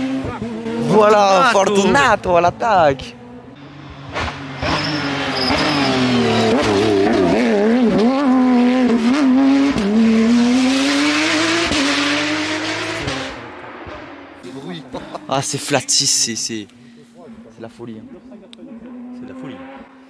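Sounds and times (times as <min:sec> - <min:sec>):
rally car engine accelerating: 0:00.0 - 0:15.6, 0:17.3 - 0:20.0
tyre squeal: 0:04.6 - 0:07.2.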